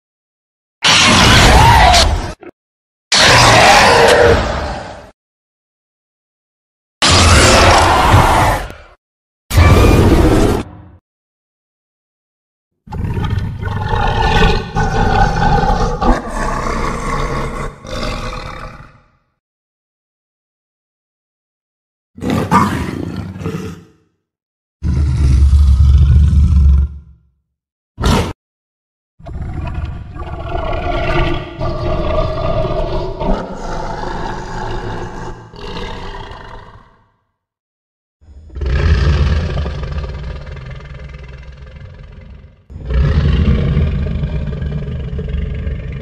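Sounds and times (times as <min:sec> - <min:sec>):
harsh monster roar: 0:00.8 - 0:02.5, 0:03.1 - 0:05.2, 0:07.0 - 0:10.7, 0:12.9 - 0:19.1, 0:24.8 - 0:27.1, 0:29.2 - 0:37.2, 0:38.5 - 0:46.0.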